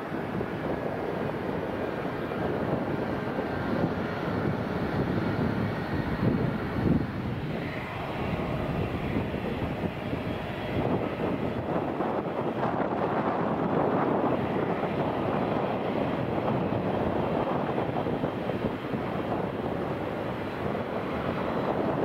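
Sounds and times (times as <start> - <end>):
jet engines rushing: 0.0 - 22.0.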